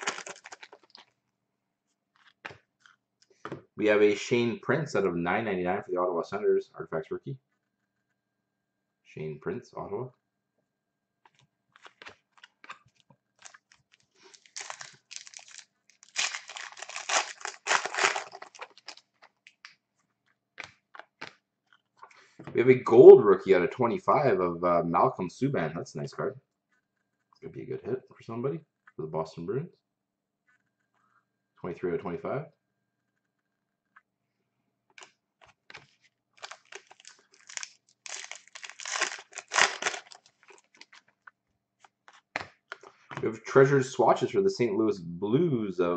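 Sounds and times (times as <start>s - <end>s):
foil pack tearing and crinkling: 0.0s - 1.0s, 13.4s - 19.5s, 36.4s - 41.0s.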